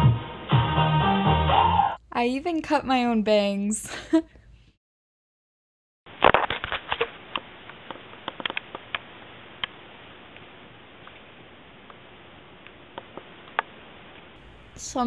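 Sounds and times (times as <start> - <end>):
faint steady hiss: 7.2 - 15.0.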